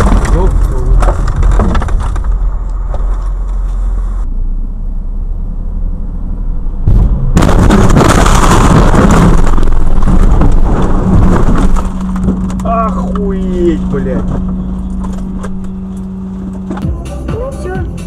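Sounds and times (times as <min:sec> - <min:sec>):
car crash noise: 0:00.0 - 0:04.3, 0:06.8 - 0:16.9
road and engine rumble: 0:00.0 - 0:18.0.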